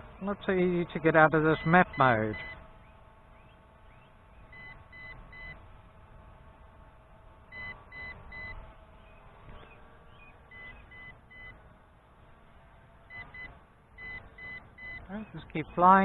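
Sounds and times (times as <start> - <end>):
short high warning beeps: 1.6 - 2.6, 10.5 - 11.6, 13.1 - 15.1.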